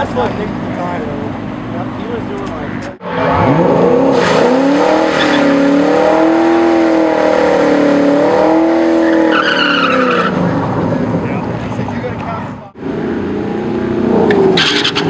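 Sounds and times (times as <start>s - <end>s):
car engine revving high: 3.0s - 11.6s, 12.7s - 15.0s
tyres squealing: 9.0s - 10.4s.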